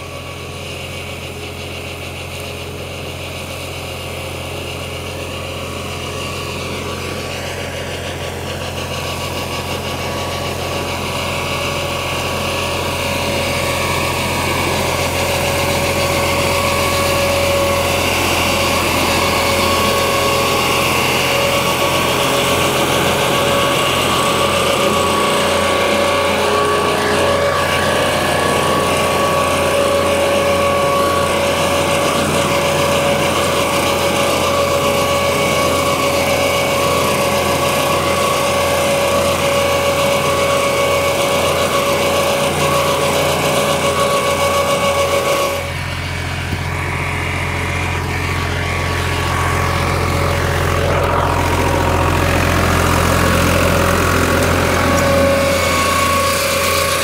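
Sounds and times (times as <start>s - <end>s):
steady whine: 0.0s - 57.0s
tractor diesel engine running: 0.0s - 57.0s.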